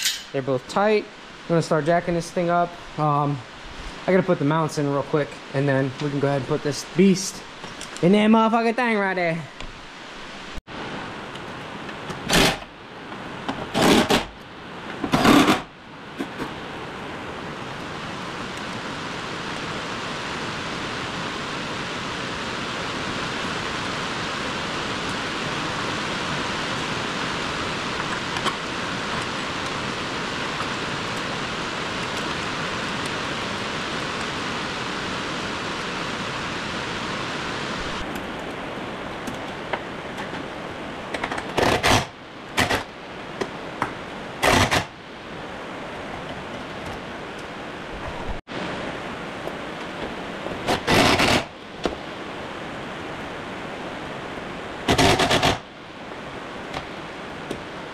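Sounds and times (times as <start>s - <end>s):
hand tools clattering: 0.0s - 0.4s.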